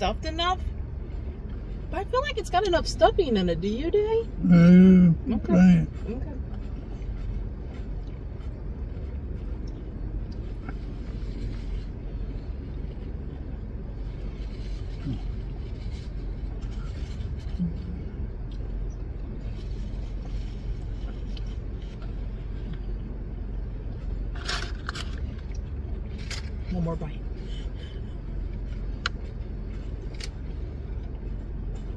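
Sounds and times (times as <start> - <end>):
low rumble in car cabin: 0.0 - 31.9
people chewing: 14.2 - 22.8.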